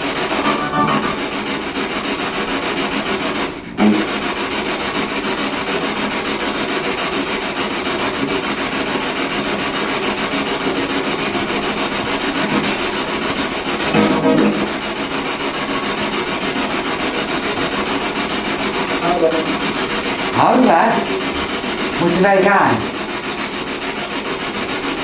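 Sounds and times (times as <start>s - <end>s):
stuttering radio static: 13.8s - 14.8s, 19.0s - 19.7s, 21.9s - 23.0s.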